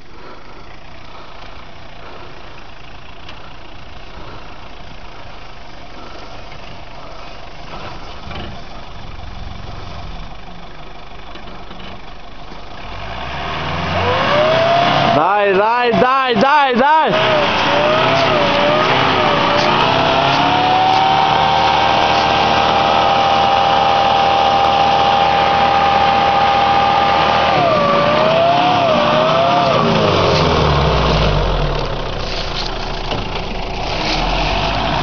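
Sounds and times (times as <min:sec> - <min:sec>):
pickup engine at high revs: 0:12.7 - 0:35.0.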